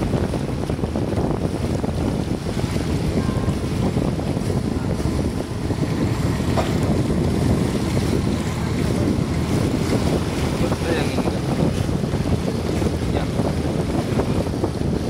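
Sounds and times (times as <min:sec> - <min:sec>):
water rushing along boat hull: 0:00.0 - 0:15.0
wind buffeting microphone: 0:00.0 - 0:15.0.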